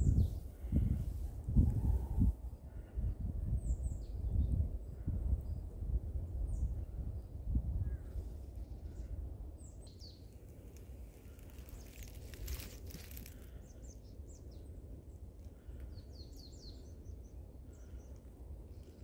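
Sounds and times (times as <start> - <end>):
small birds chirping: 6.5 - 19.0
rustling: 10.4 - 13.6.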